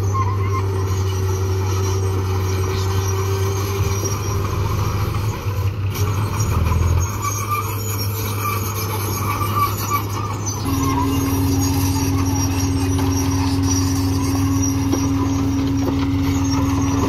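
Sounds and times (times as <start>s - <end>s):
diesel engine running: 0.0s - 17.0s
high squeaks: 0.0s - 17.0s.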